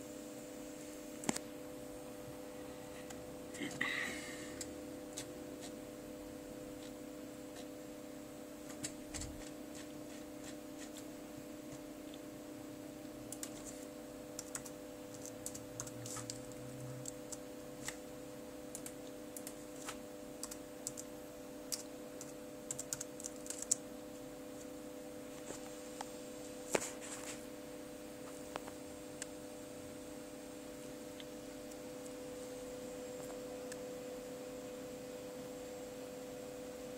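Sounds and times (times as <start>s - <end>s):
steady hum: 0.0s - 36.9s
laptop keyboard typing: 13.3s - 13.8s, 14.4s - 18.0s, 18.7s - 21.1s, 21.7s - 23.9s.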